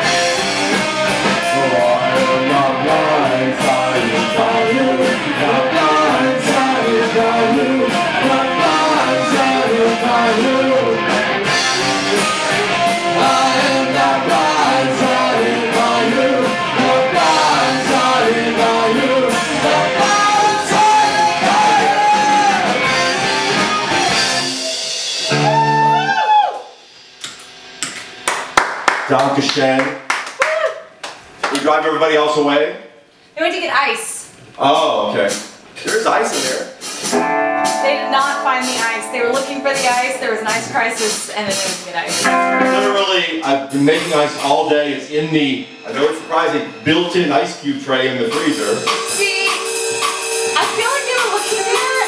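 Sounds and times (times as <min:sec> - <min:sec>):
rock band playing live: 0:00.0 - 0:28.2, 0:36.1 - 0:52.0
person singing: 0:01.4 - 0:23.1.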